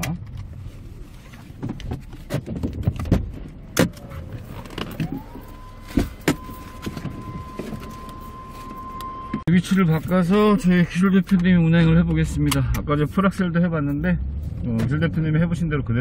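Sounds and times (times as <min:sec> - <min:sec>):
clicks and knocks of car seat: 0:01.3 - 0:07.2.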